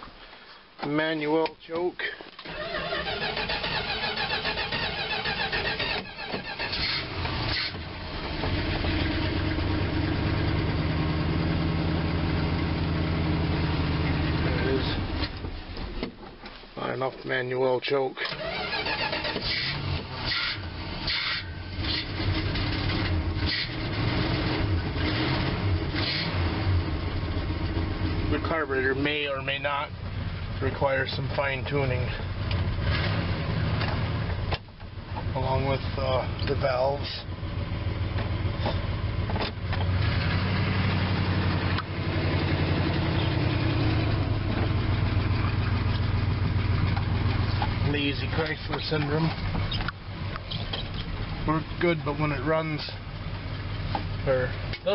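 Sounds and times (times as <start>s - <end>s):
car engine idling: 2.3s - 16.7s, 18.4s - 54.9s
truck engine idling: 33.5s - 54.9s.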